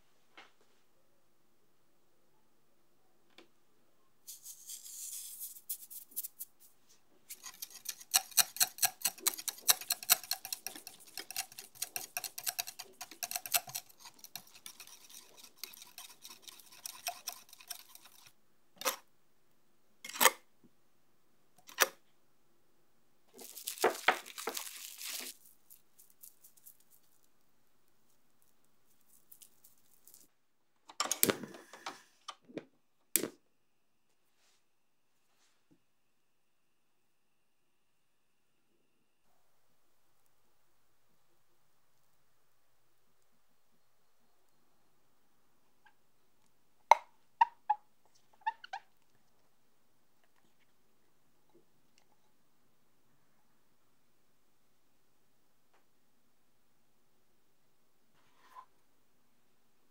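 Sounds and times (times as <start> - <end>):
whisk clicking against glass bowl: 7.3 - 18.3.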